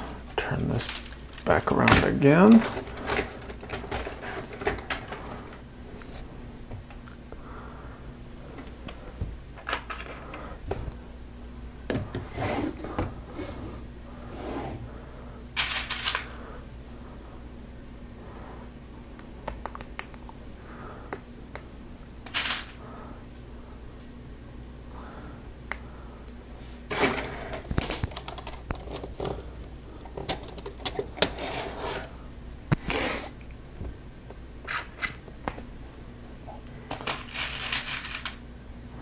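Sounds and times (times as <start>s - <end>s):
plastic parts clicking and rattling: 0.6s - 5.2s, 15.6s - 16.3s, 26.9s - 31.5s, 36.9s - 38.4s.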